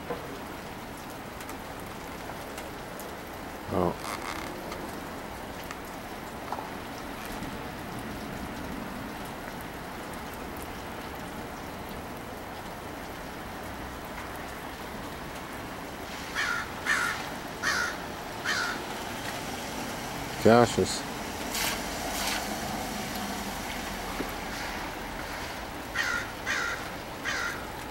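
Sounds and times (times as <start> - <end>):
steady rain falling: 0.0 - 27.9
crow cawing: 16.3 - 18.9, 25.9 - 27.7.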